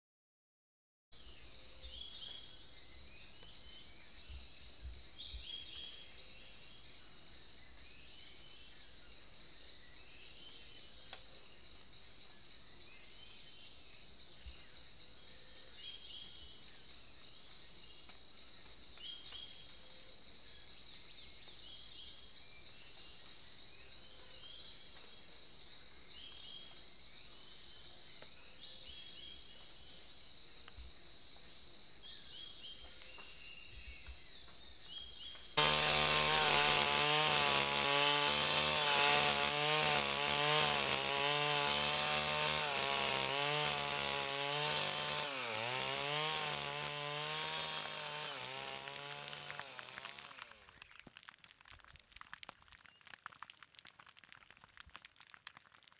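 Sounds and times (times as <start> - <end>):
insect chirps: 1.2 - 50.9
chainsaw cutting wood: 35.6 - 50.9.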